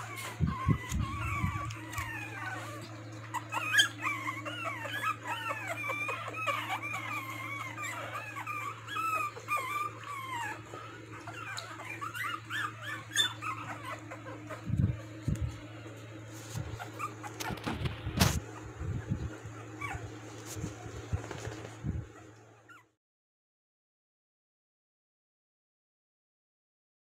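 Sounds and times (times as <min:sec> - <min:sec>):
steady low hum: 0:00.0 - 0:22.9
puppies whimpering and squeaking: 0:00.0 - 0:23.0.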